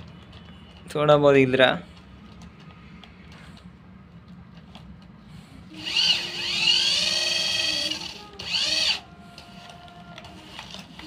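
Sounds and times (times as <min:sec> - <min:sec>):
toy car electric motor whine: 0:05.8 - 0:09.0.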